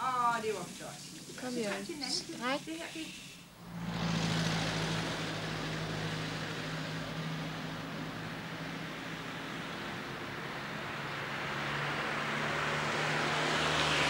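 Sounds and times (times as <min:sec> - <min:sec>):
cars driving along road: 0:03.2 - 0:14.0.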